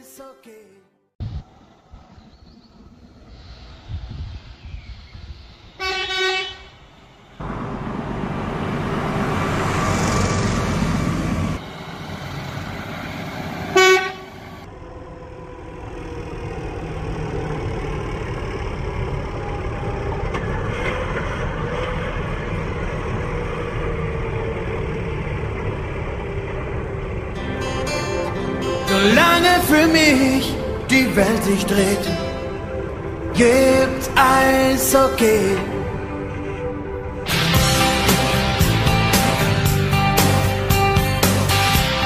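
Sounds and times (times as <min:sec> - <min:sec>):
diesel truck engine driving past: 0:01.3 - 0:42.0
truck horn blasts: 0:05.8 - 0:06.8, 0:13.7 - 0:14.4.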